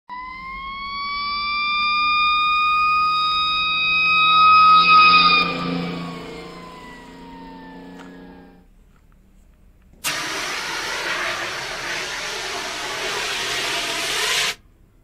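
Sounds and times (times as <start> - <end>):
fire engine siren wailing: 0.1 - 8.7, 10.0 - 14.6.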